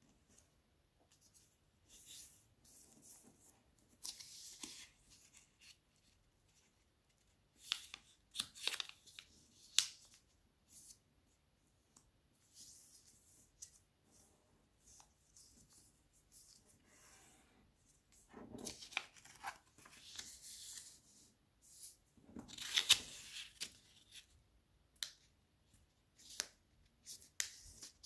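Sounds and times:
paper rustling and crinkling: 0:18.2 - 0:21.0, 0:22.3 - 0:24.3.

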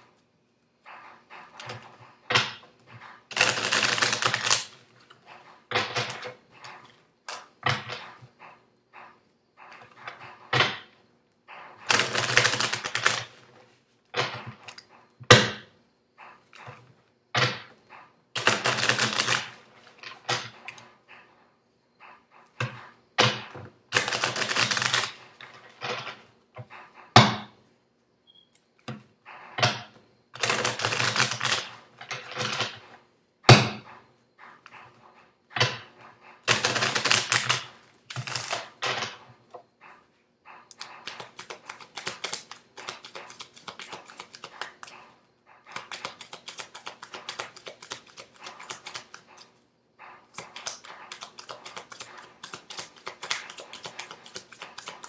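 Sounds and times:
cards riffling: 0:24.0 - 0:25.1, 0:36.5 - 0:38.7, 0:40.8 - 0:44.9, 0:45.8 - 0:49.4, 0:50.4 - 0:55.0
deck of cards tapping: 0:41.0 - 0:44.9, 0:45.8 - 0:49.2, 0:50.4 - 0:55.0.

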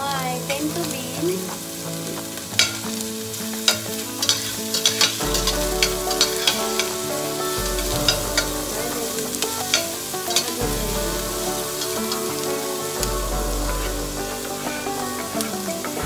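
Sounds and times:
onions sizzling in a pot: 0:00.0 - 0:16.0
metal spatula scraping a pot: 0:02.6 - 0:02.8, 0:03.6 - 0:14.7.

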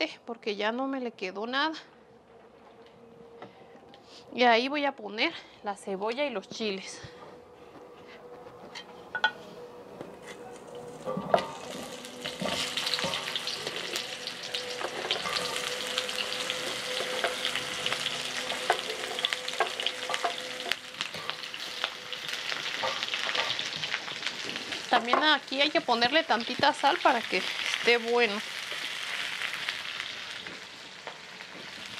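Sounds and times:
vegetables sizzling in oil: 0:11.0 - 0:31.9.

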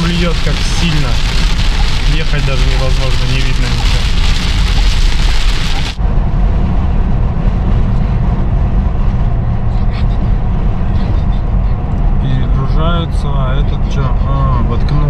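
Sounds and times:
heavy rain on a car: 0:00.0 - 0:06.0
car driving rumble: 0:00.0 - 0:15.0.

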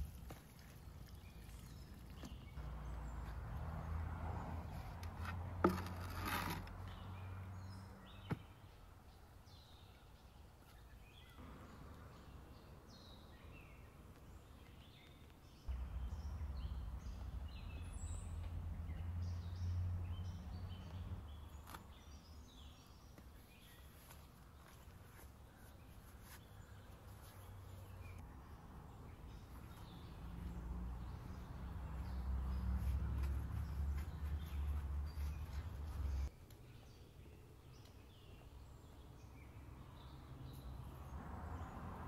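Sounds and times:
small birds chirping: 0:00.0 - 0:05.4, 0:06.7 - 0:41.8.

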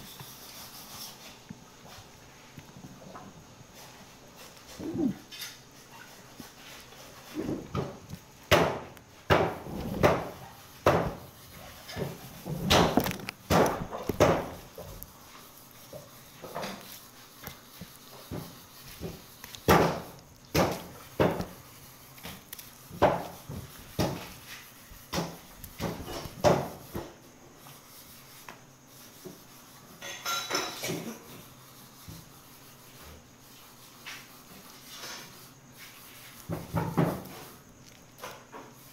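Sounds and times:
knocks and thuds of meat cutting: 0:07.4 - 0:11.3, 0:11.9 - 0:14.9, 0:17.4 - 0:21.6, 0:22.2 - 0:24.4, 0:25.0 - 0:27.2, 0:36.4 - 0:37.5.

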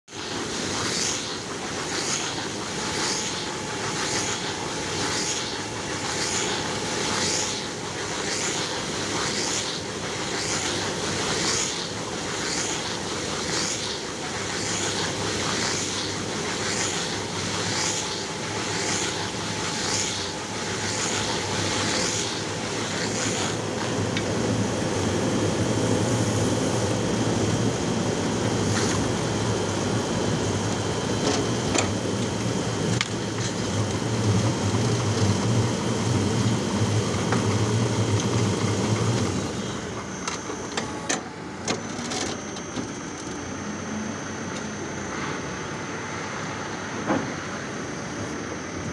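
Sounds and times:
machine hum: 0:00.2 - 0:48.9.

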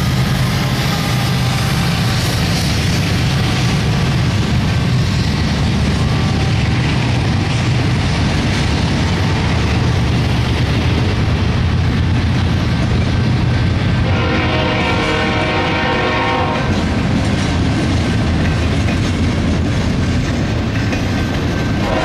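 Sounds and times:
train rumbling on rails: 0:00.0 - 0:22.0
horn-like tone: 0:14.0 - 0:16.7.

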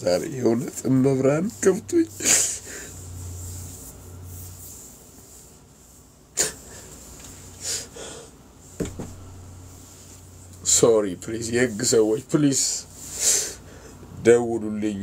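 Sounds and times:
man sobbing: 0:02.0 - 0:02.9.

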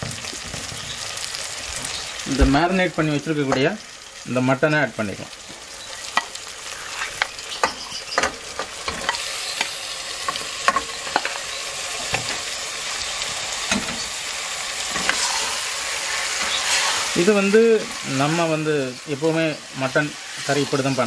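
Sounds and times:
meat sizzling in a pot: 0:00.0 - 0:21.0.

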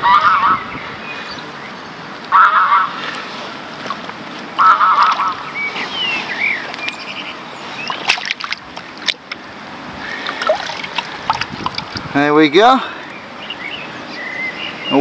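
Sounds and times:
geese honking: 0:00.0 - 0:00.6, 0:02.3 - 0:03.1, 0:04.6 - 0:05.6
waterbird calls: 0:00.0 - 0:15.0
fish splashing in water: 0:02.3 - 0:06.9, 0:07.6 - 0:12.1.

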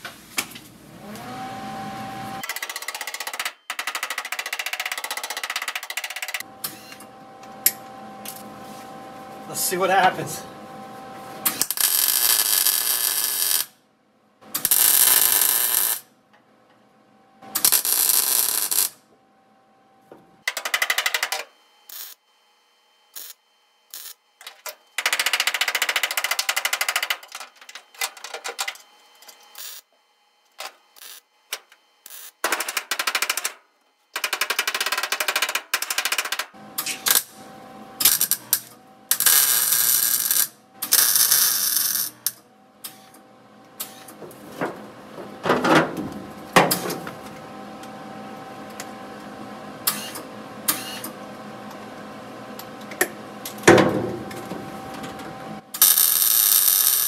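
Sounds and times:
welder arc crackling: 0:11.4 - 0:13.8, 0:14.6 - 0:16.1, 0:17.6 - 0:19.0, 0:38.0 - 0:43.0, 0:55.8 - 0:57.0.

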